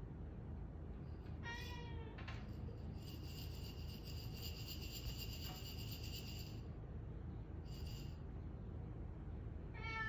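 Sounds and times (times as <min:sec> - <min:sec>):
cat meowing: 0:01.4 - 0:02.2, 0:09.7 - 0:10.0.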